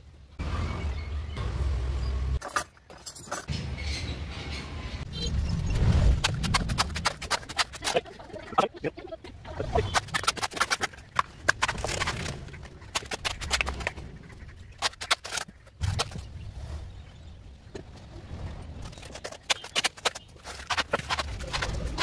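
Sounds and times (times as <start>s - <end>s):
wooden stick tamping concrete: 6.2s - 8.7s, 9.6s - 14.0s, 14.8s - 16.2s, 18.9s - 22.0s
trowel scraping metal pan: 19.0s - 22.0s.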